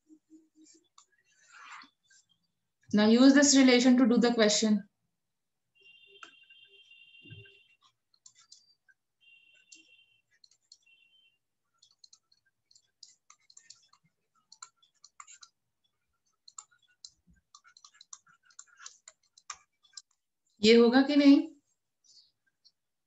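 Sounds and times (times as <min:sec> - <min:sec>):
faint clicks and taps: 0:07.3 - 0:10.9, 0:11.8 - 0:20.3.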